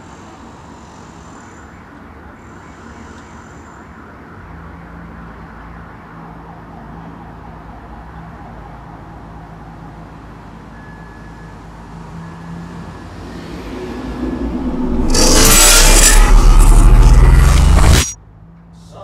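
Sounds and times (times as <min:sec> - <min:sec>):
low hum and rumble: 0:13.6 - 0:18.2
faint high trills: 0:13.9 - 0:18.2.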